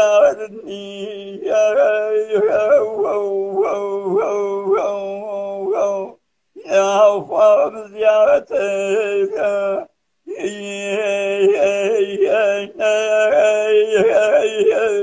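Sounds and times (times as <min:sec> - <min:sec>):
man singing unaccompanied chant: 0:00.0 - 0:15.0.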